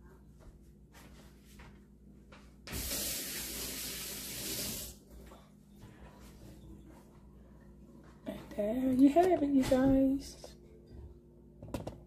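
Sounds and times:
aerosol spray can hissing: 2.7 - 4.9.

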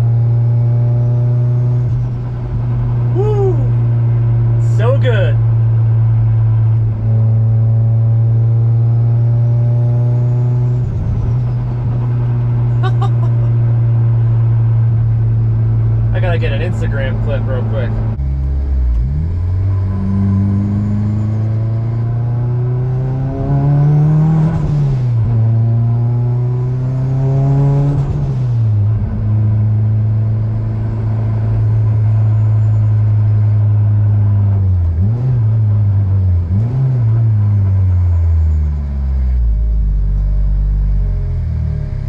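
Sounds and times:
car engine revving: 0.0 - 42.0.

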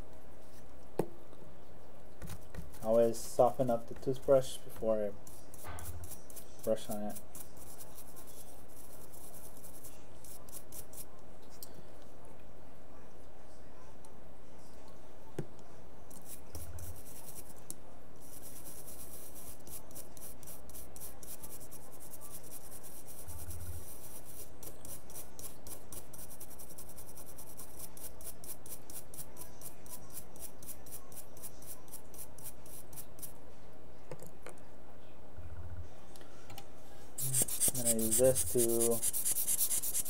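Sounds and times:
toothbrush scrubbing circuit board: 37.2 - 40.0.

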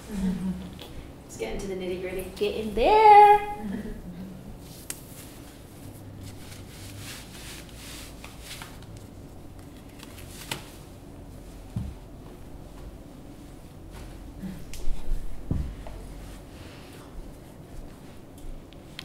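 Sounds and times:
cloth rustling: 4.6 - 18.3.

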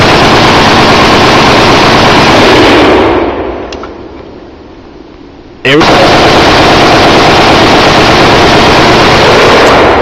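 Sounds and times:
rifle automatic burst: 0.0 - 3.5, 5.7 - 10.0.

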